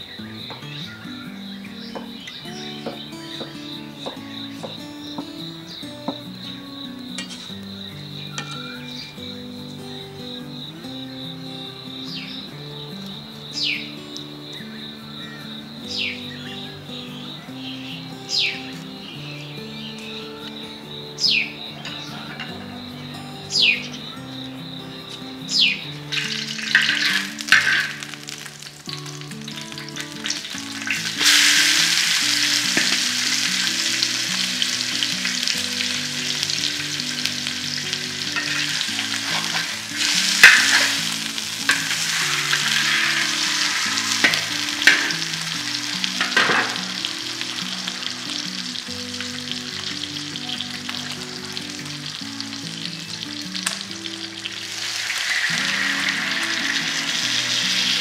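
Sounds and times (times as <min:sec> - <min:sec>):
sharp oil crackles: 0:25.2 - 0:58.0
fish sizzling in hot oil: 0:26.1 - 0:58.0.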